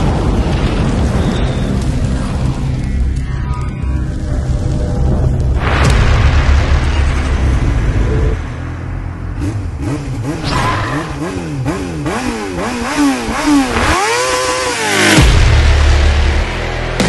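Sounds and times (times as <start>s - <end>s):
motorcycle engine revving: 8.6s - 17.0s.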